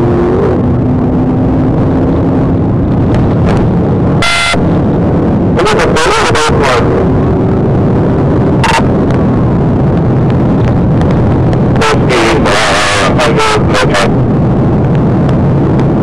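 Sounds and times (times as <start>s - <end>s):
car road and engine noise: 0.0s - 16.0s.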